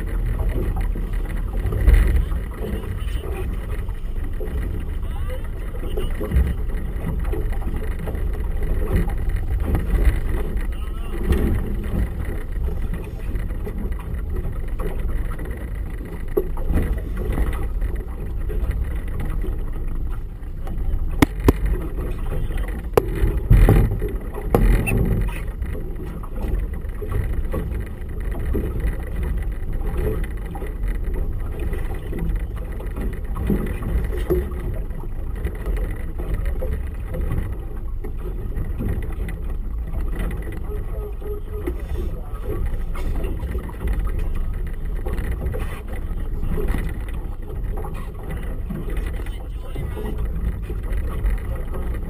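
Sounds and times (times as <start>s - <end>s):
outboard motor running: 0.0s - 52.0s
water noise: 0.0s - 52.0s
sharp knocks: 21.2s - 21.8s.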